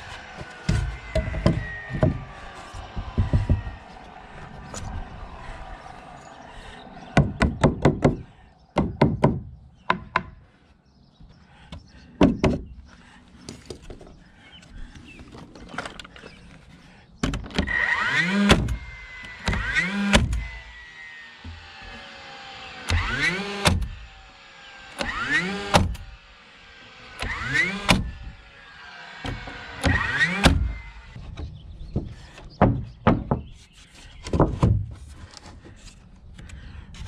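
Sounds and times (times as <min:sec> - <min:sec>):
small power tool motor: 0:00.0 - 0:04.2, 0:17.6 - 0:31.2
knocks on wooden boards: 0:00.6 - 0:02.3, 0:02.9 - 0:03.8, 0:07.2 - 0:08.2, 0:08.8 - 0:10.4, 0:11.7 - 0:12.7, 0:31.3 - 0:33.6, 0:34.3 - 0:35.0.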